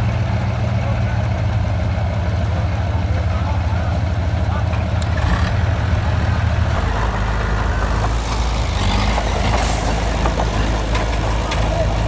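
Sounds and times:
crawler dozer diesel engine: 0.0s - 12.0s
dump truck diesel engine running: 0.0s - 12.0s.

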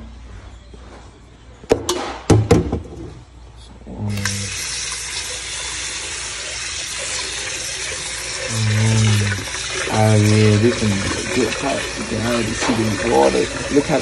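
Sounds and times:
tap water pouring into pot: 4.1s - 14.0s.

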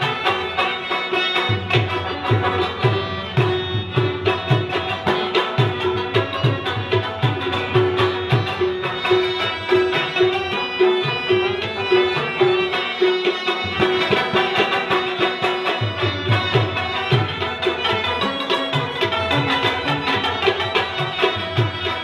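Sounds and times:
sustained harmonium notes: 0.0s - 22.0s
tabla drumming: 0.0s - 22.0s.

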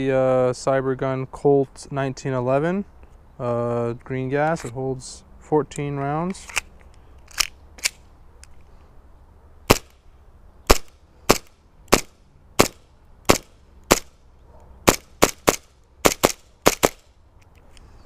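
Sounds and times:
airsoft pistol shots: 9.7s - 10.0s, 10.7s - 14.1s, 14.8s - 17.0s.

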